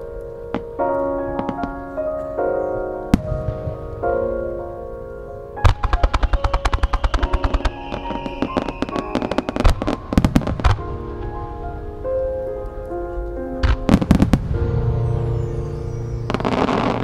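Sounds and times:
music playing: 0.0s - 17.0s
fireworks bangs: 0.6s - 2.0s, 3.1s - 4.4s, 5.6s - 11.7s, 13.6s - 17.0s.

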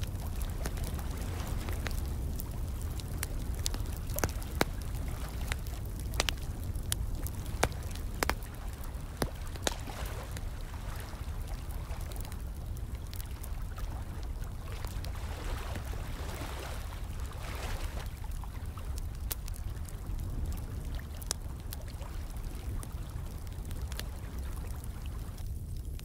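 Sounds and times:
steady low rumble: 0.0s - 16.2s
fire crackling and popping: 0.0s - 26.0s
trickling water: 0.0s - 26.0s.

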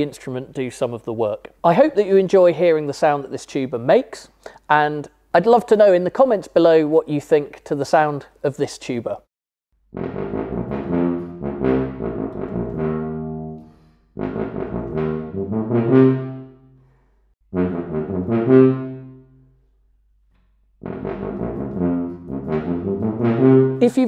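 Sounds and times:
tuba playing a melody: 9.9s - 16.8s, 17.5s - 19.6s, 20.8s - 24.0s.

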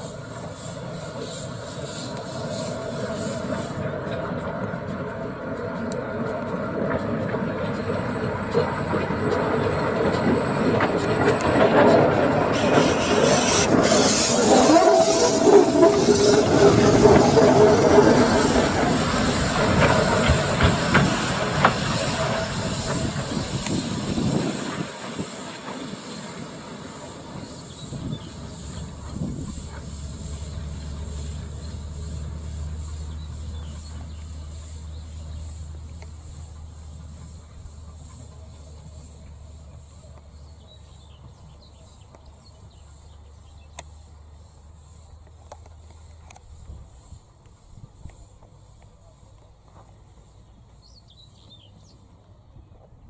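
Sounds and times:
steam hiss: 0.0s - 4.4s, 11.8s - 41.1s, 43.9s - 50.5s
wheels clicking over rails: 0.0s - 44.0s
steam locomotive exhaust chuffs: 0.0s - 52.9s
low rumble: 11.8s - 24.9s.

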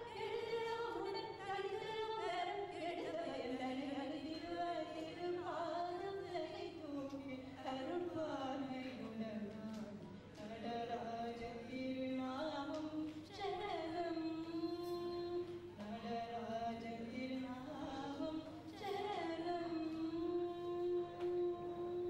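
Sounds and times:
person singing a hymn: 0.0s - 22.0s.

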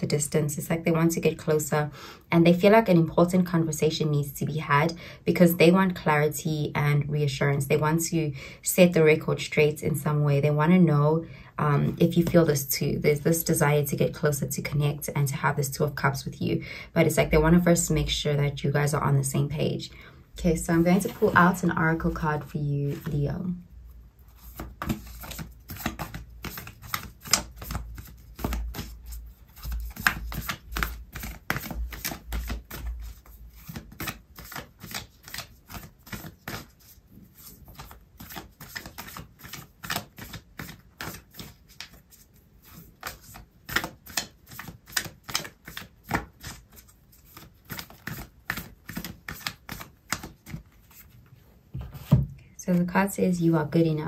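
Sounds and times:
cards being shuffled: 24.3s - 52.2s.

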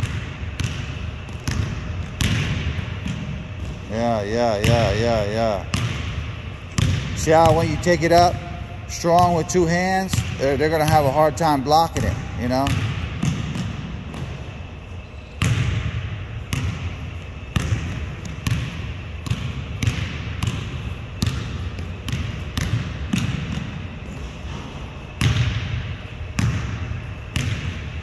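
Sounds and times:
basketball bouncing on hardwood floor: 0.0s - 3.8s, 5.7s - 7.8s, 12.0s - 14.4s, 15.4s - 23.7s, 25.2s - 25.8s, 26.4s - 27.8s.

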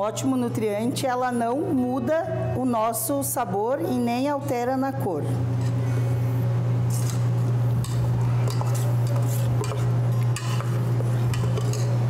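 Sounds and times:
steady low hum: 0.0s - 12.0s
metal spoon stirring batter in pot: 8.4s - 12.0s.

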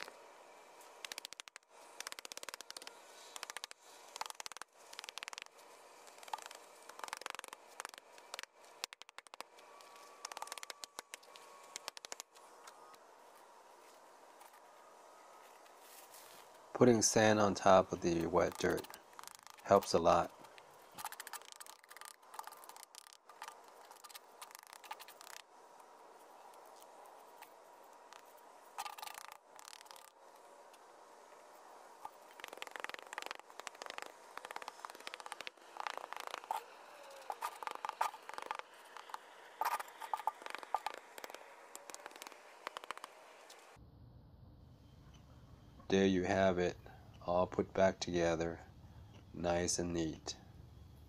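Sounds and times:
trowel scraping gritty sand: 16.0s - 20.3s.

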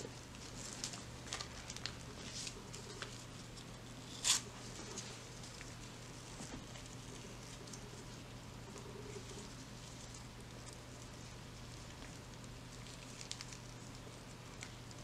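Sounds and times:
gloved hands rustling plastic sachet: 0.0s - 15.0s
plastic crinkle: 0.0s - 15.0s.

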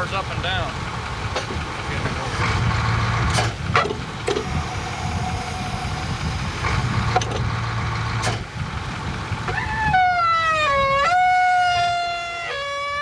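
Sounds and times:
truck engine running: 0.0s - 13.0s
sharp metal knocks: 3.3s - 4.4s, 8.2s - 8.5s.

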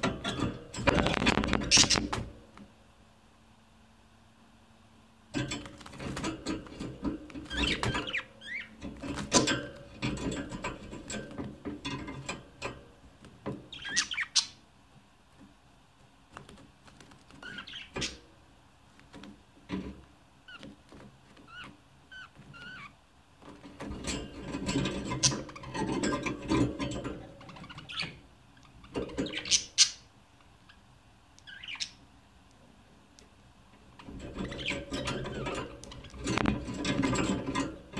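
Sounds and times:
budgerigars chattering: 13.7s - 14.6s, 17.4s - 18.2s, 31.5s - 32.0s.

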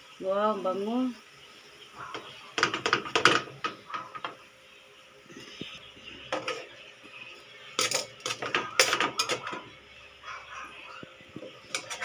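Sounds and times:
metal tongs scraping a wok: 6.3s - 6.8s, 7.6s - 9.7s, 11.4s - 12.0s.

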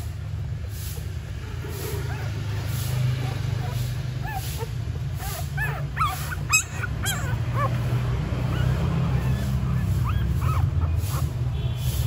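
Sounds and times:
puppies squeaking and whimpering: 1.4s - 11.5s.

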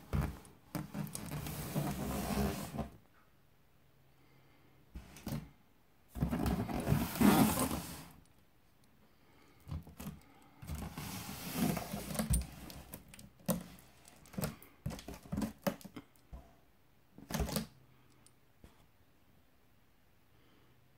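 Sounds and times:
scraping and rubbing cardboard: 0.0s - 2.9s, 6.2s - 8.1s.

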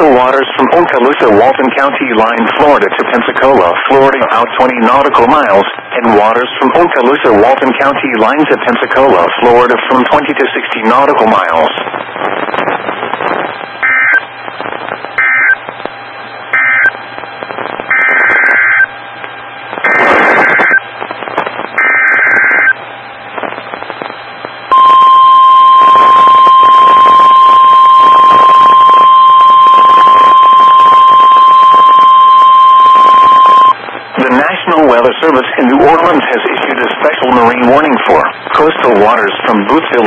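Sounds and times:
radio hiss: 0.0s - 25.0s, 32.8s - 40.0s
data bursts: 11.6s - 18.9s, 19.6s - 22.8s, 23.4s - 34.5s
steady warning alarm tone: 13.6s - 17.2s, 17.9s - 19.0s, 19.6s - 34.0s.

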